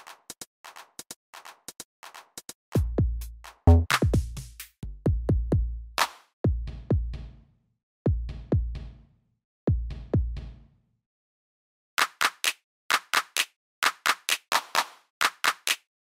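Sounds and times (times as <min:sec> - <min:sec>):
deep kick drums: 0:02.8 - 0:05.8, 0:06.4 - 0:07.3, 0:08.1 - 0:08.9, 0:09.7 - 0:10.6.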